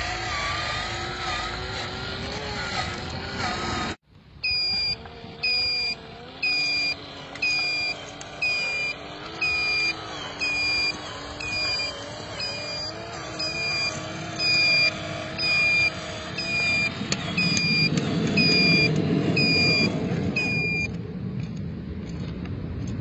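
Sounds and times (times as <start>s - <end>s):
simulated truck engine running: 0.0s - 23.0s
reversing beeper: 4.4s - 21.0s.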